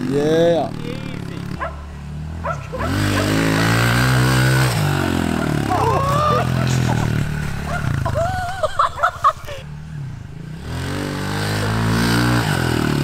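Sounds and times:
pit bike engine revving: 0.0s - 13.0s
person shouting: 5.4s - 6.8s.

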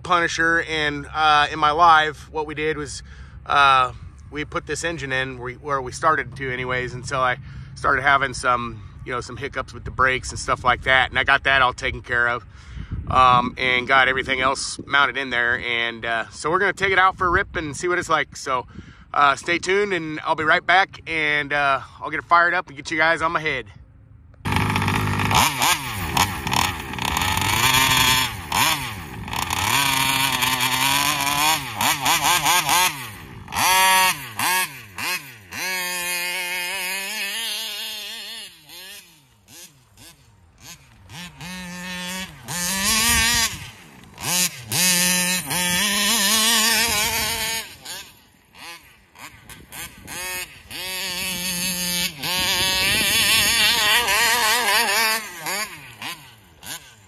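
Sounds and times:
two-stroke rc car engine revving: 24.4s - 57.0s.

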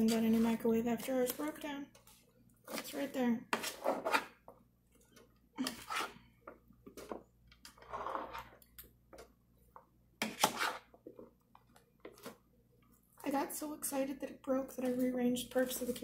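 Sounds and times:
spatula scraping a pan: 0.0s - 6.3s, 6.9s - 8.6s, 10.2s - 11.0s
vegetables rustling and clattering: 0.0s - 9.4s, 10.2s - 13.5s, 14.8s - 16.0s.

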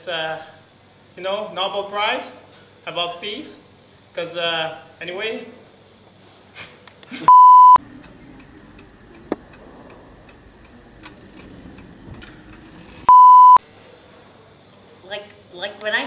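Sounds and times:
electronic censor bleeps: 7.3s - 7.8s, 13.1s - 13.6s.

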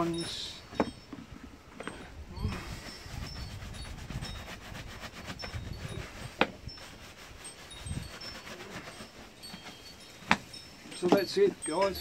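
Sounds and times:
brush buffing leather boot: 2.5s - 10.5s.

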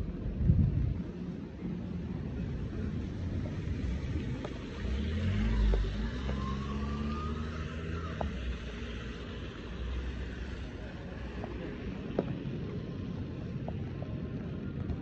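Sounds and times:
tyres hissing on wet road: 3.8s - 12.7s.

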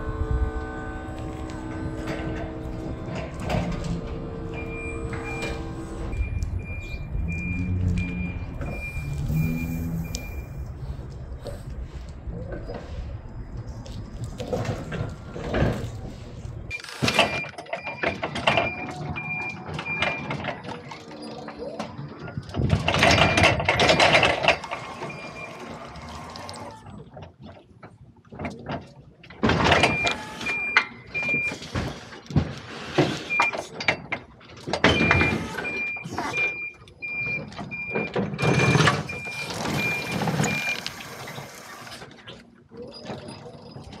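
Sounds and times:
forklift engine: 0.0s - 13.4s, 34.9s - 42.3s
forklift reversing alarm beeps: 3.5s - 10.8s, 16.7s - 22.2s, 23.1s - 25.8s, 29.8s - 31.7s, 33.2s - 34.1s, 34.8s - 41.0s.

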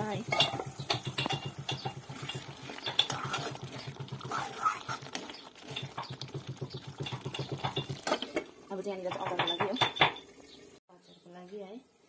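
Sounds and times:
metal spoon scraping a pan: 0.1s - 10.3s
spoon clinking against pan: 0.3s - 3.3s.

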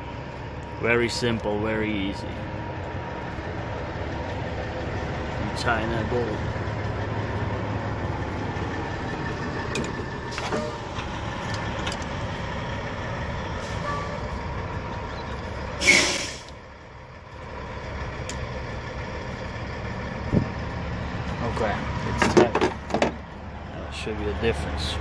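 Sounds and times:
truck engine idling: 0.0s - 25.0s
air hiss: 15.8s - 16.5s.

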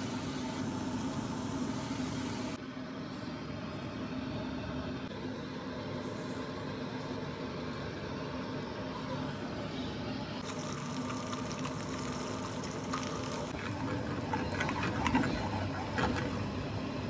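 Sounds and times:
eggs sizzling in oil: 0.0s - 2.6s, 10.4s - 17.0s
oil popping and crackling: 10.4s - 16.5s.

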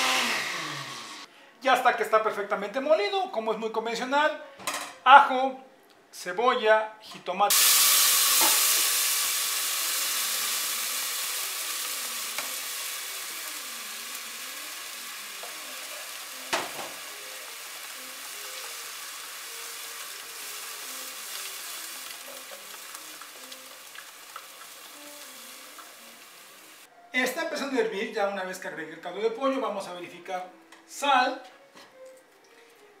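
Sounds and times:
sauce sizzling in hot oil: 7.5s - 26.9s.

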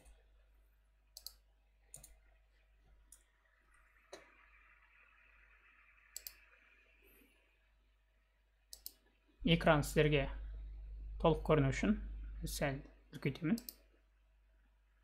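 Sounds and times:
quiet hiss: 0.0s - 15.0s
computer mouse clicks: 1.1s - 2.3s, 6.1s - 6.6s, 8.7s - 9.0s, 13.6s - 13.9s.

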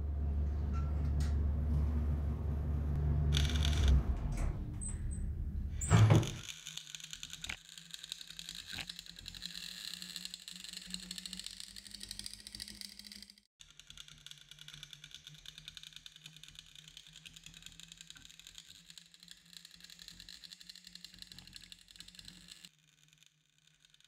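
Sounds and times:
low steady hum: 0.0s - 6.1s
welding arc crackling: 3.3s - 4.0s.

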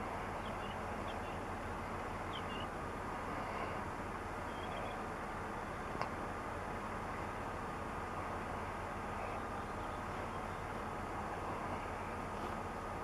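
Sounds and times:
jet engines idling: 0.0s - 13.0s
bird chirps: 0.2s - 1.5s, 2.2s - 2.7s, 4.5s - 5.0s.

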